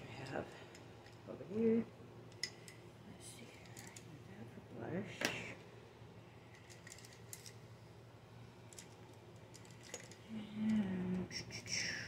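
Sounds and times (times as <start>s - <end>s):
low steady hum: 0.0s - 12.0s
makeup brushes clicking and rattling: 6.5s - 7.6s, 8.7s - 10.8s.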